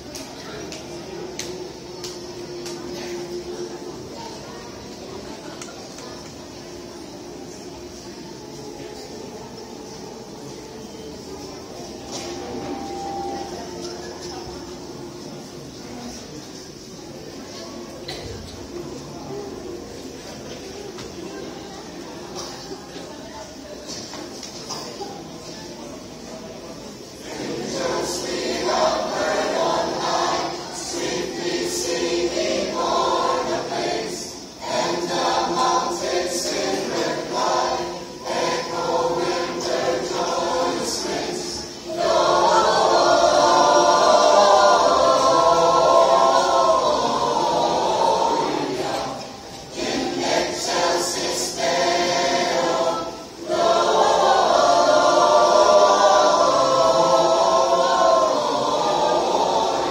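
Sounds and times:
mixed choir singing a carol: 0.0s - 59.9s.

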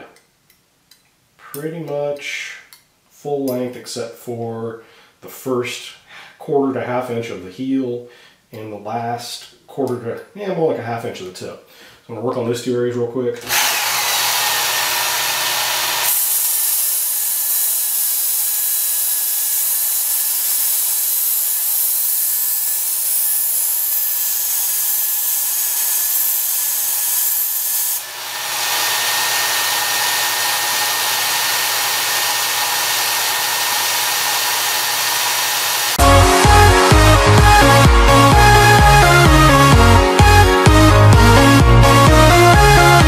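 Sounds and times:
belt sharpener grinding knife: 13.5s - 36.0s.

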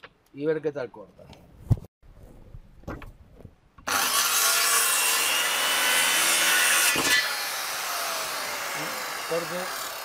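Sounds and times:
circular saw cutting wood: 3.8s - 10.0s.

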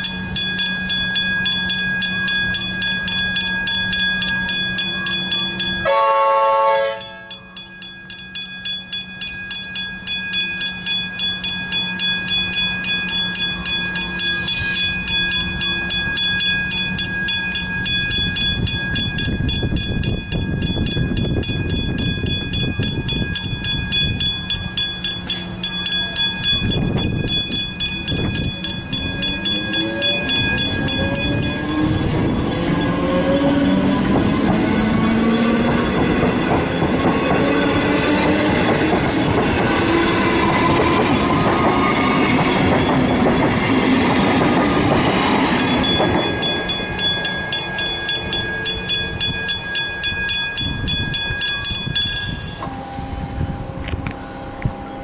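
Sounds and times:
level crossing bell ringing: 0.0s - 53.2s
electric train rumble: 0.0s - 55.0s
train horn: 5.8s - 7.3s
rising motor whine: 28.9s - 46.4s, 52.6s - 55.0s.

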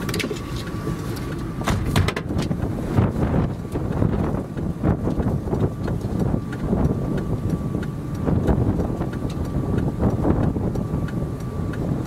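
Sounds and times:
gusty wind on microphone: 0.0s - 12.0s.

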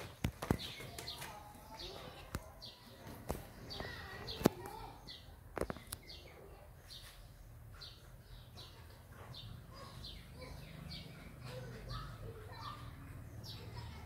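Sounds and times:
bird chirping: 0.0s - 14.0s.

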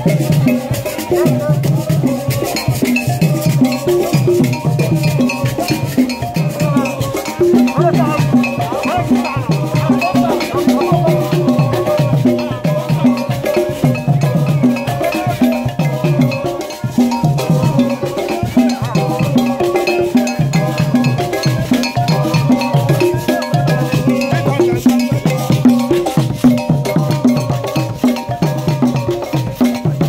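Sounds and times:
hand drums beating: 0.0s - 30.0s
other percussion: 0.0s - 30.0s.

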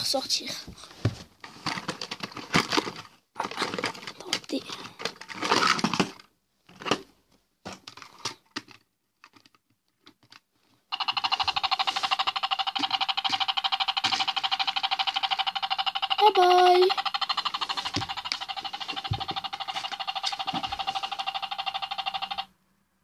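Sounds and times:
cardboard and plastic packaging rustling: 0.8s - 10.4s
pulsing electronic toy tone: 10.9s - 22.5s.

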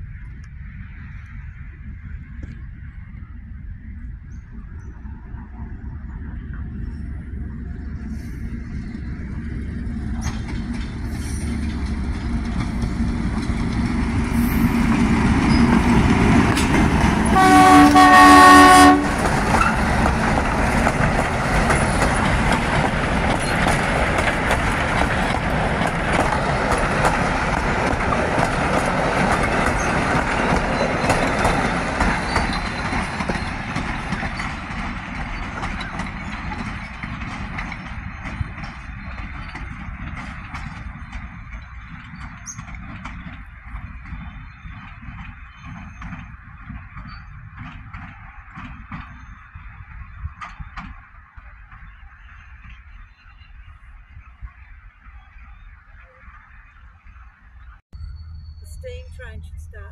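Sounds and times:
diesel locomotive engine: 0.0s - 59.9s
wheel clatter on rail joints: 4.0s - 58.6s
train horn blast: 17.2s - 19.2s.

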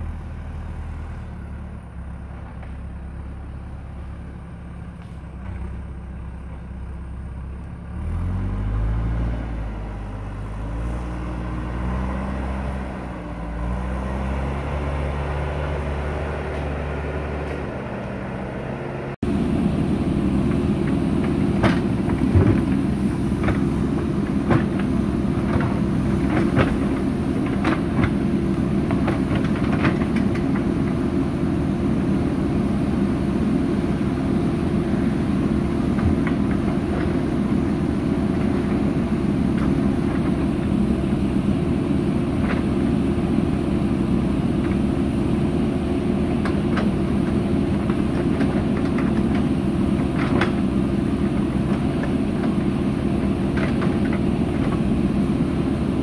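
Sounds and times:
diesel engine under load: 0.0s - 56.0s.

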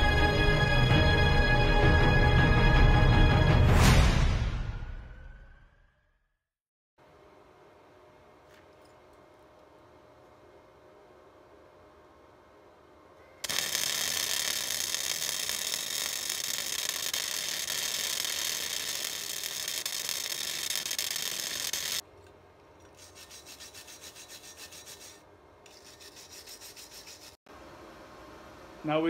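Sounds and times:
arc welder crackling hiss: 13.4s - 22.0s
wire brush scrubbing metal: 13.4s - 22.0s, 22.8s - 27.4s.

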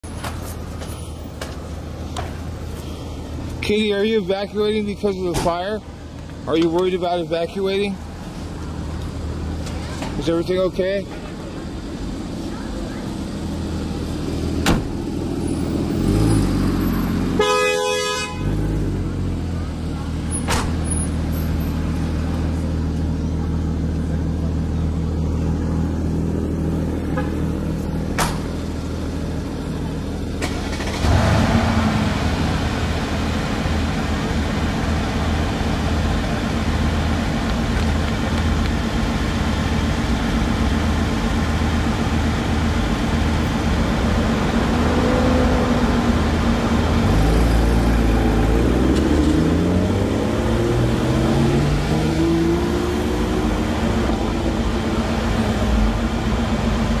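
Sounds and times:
car engine idling: 0.0s - 57.0s
engine revving: 14.3s - 19.4s, 30.4s - 33.3s, 43.5s - 56.6s.

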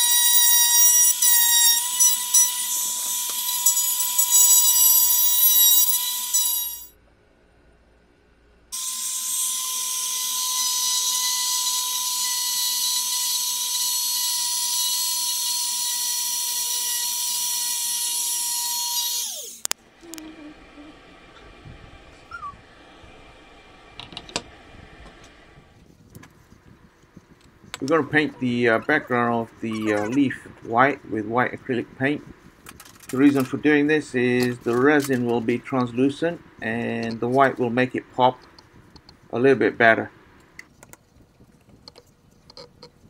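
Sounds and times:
router whining: 0.0s - 6.9s, 8.8s - 25.6s.

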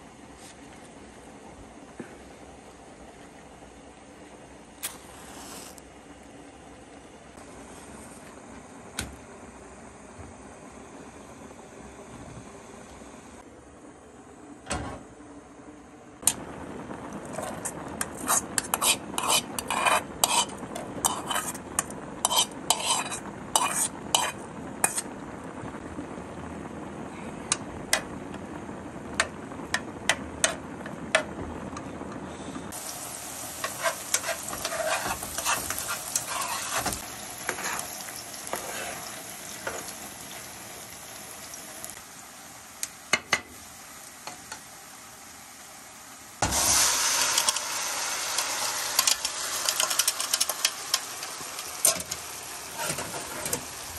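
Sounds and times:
onions sizzling in a pan: 0.0s - 13.0s, 16.2s - 53.9s
metal spoon scraping a pan: 17.4s - 25.1s, 33.6s - 39.9s, 51.8s - 53.7s.

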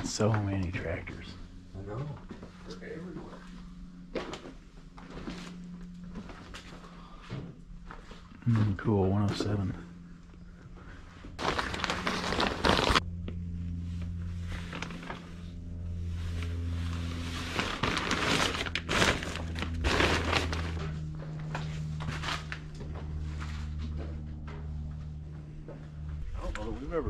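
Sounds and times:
steady low hum: 0.0s - 27.0s
rustling: 11.4s - 13.0s, 16.1s - 21.0s
footsteps on barn floor: 20.5s - 26.4s.

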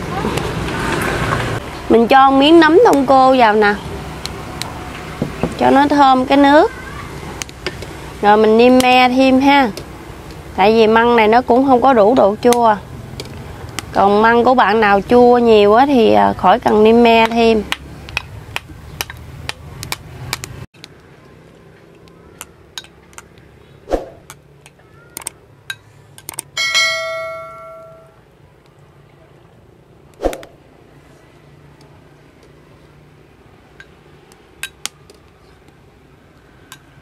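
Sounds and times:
bell-like ringing strike: 26.6s - 28.2s.

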